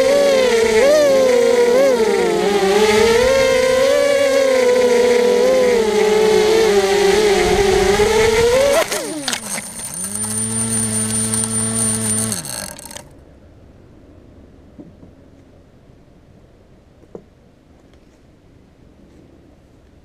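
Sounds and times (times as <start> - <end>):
quadcopter crashing: 0.0 - 13.1
quadcopter motors whining: 0.0 - 13.1.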